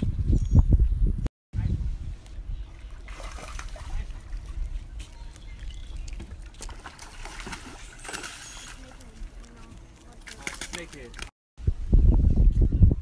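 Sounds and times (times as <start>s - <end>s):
wind rumbling on microphone: 0.0s - 7.6s, 11.6s - 13.0s.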